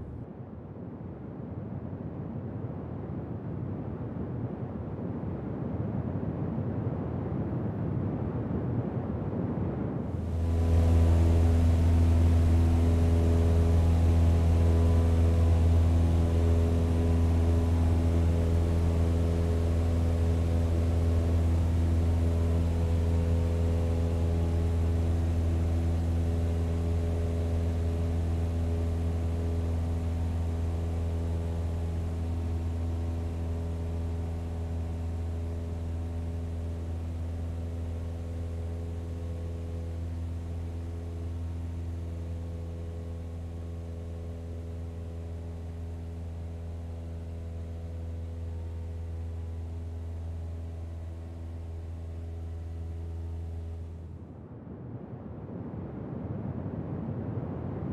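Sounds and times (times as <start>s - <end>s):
turboprop engines droning: 10.1s - 54.7s.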